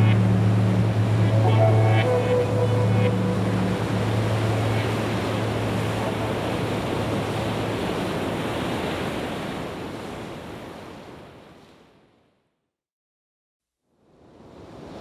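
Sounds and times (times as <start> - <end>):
low hum: 0.0 - 7.3
steady rushing noise: 0.0 - 8.5.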